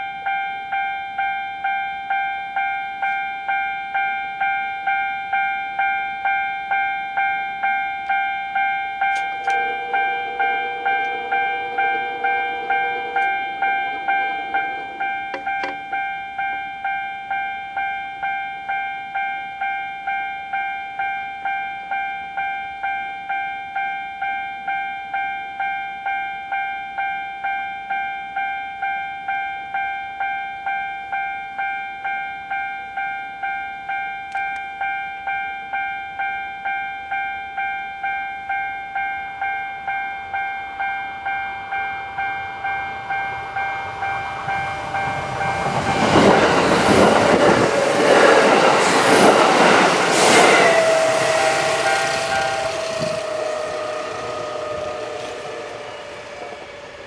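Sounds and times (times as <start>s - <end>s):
level crossing warning bell: 0.0s - 57.0s
train rumbling: 9.0s - 16.0s, 42.1s - 57.0s.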